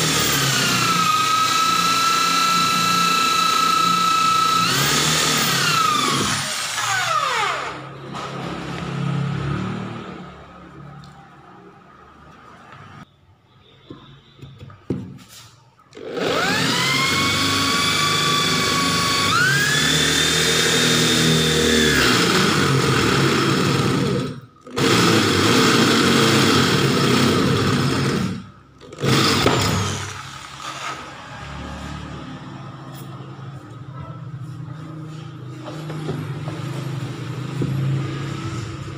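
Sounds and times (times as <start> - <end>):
electric drill boring metal: 0.0 - 7.8, 16.0 - 31.2.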